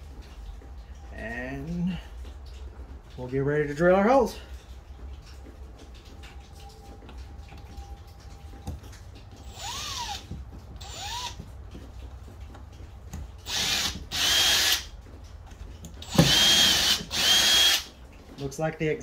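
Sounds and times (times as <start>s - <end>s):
cordless drill boring: 9.4s - 10.2s, 10.8s - 11.4s, 13.5s - 14.9s, 16.0s - 17.9s.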